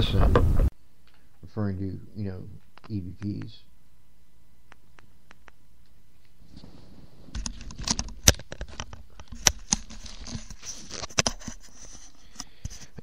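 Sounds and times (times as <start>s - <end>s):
headphones being handled: 6.2s - 13.0s.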